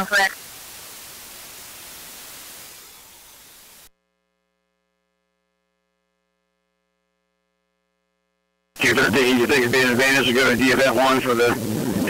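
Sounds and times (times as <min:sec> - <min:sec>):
radio static hiss: 0:00.0 - 0:03.9, 0:08.8 - 0:12.0.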